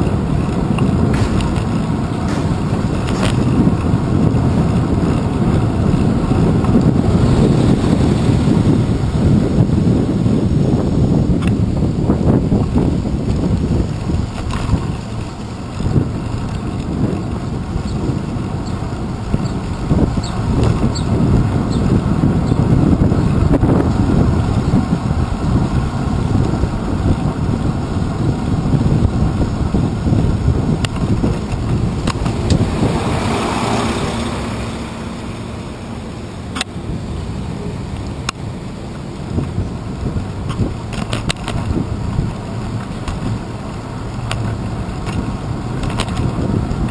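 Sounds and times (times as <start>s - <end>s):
road vibration rumble: 0.0s - 46.9s
vehicle engines: 0.0s - 46.9s
wind buffeting microphone: 0.0s - 46.9s.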